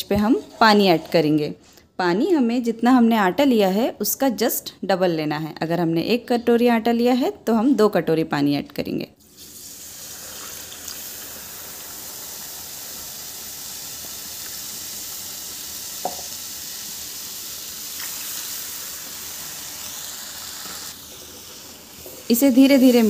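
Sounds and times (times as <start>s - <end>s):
flour sizzling in fat: 9.2s - 23.0s.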